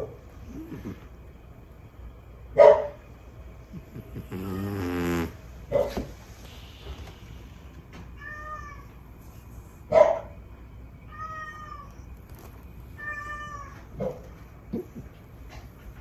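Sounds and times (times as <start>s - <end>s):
cat meowing: 8.2s - 8.9s, 11.1s - 12.0s, 13.0s - 13.9s.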